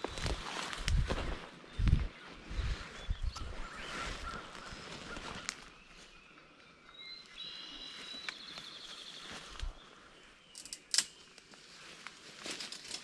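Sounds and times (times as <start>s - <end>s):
footsteps swishing through grass: 0.0s - 6.2s, 7.9s - 9.8s
songbird singing with trill: 1.7s - 11.4s.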